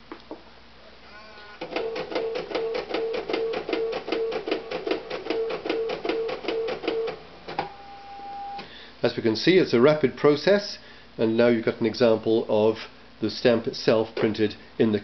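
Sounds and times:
rapid printer ticking: 1.6s - 7.2s
printer whir: 1.6s - 8.7s.

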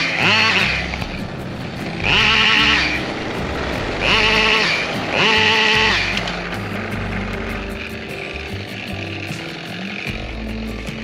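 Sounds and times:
chainsaw revving: 0.0s - 11.0s.

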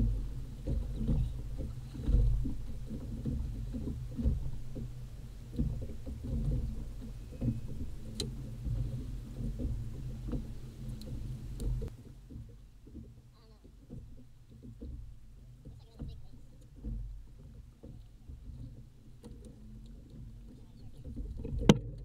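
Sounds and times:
wind rumble on microphone: 0.0s - 12.5s
waves slapping against boat hull: 0.0s - 22.0s.

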